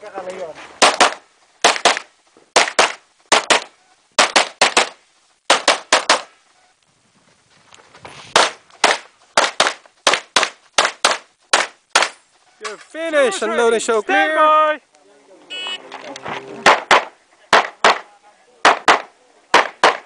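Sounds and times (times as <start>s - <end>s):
rapid handgun shots: 0.8s - 6.3s, 8.4s - 12.2s, 16.6s - 20.0s.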